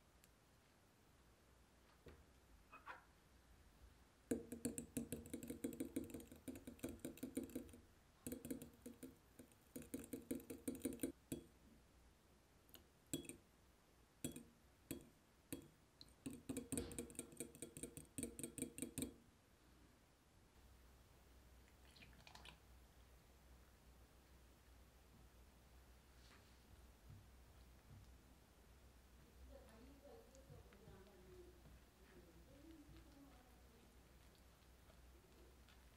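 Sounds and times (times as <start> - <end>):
spoon clinking on glass bowl: 13.2 - 13.4.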